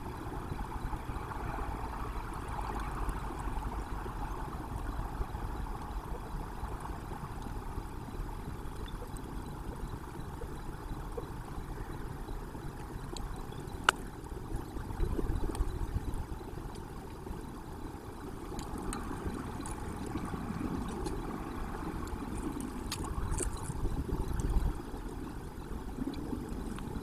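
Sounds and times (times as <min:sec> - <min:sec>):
low rumbling background noise: 0:00.0 - 0:27.0.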